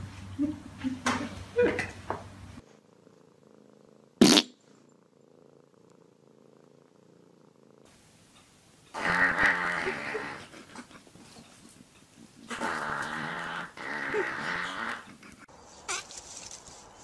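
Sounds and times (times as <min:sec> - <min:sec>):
cat purring: 0:02.6 - 0:15.5.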